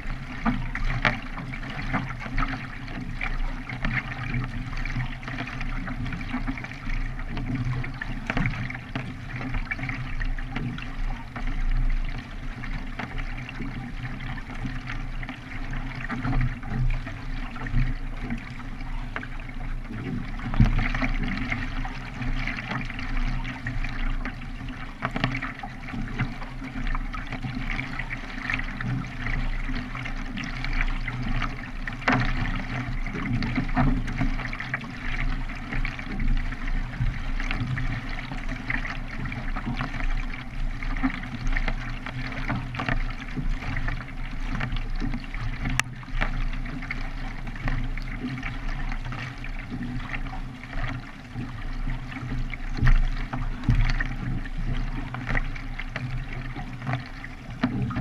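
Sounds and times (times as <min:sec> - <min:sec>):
paddle blades splashing water: 0:00.0 - 0:58.0
water trickling off paddle: 0:00.0 - 0:58.0.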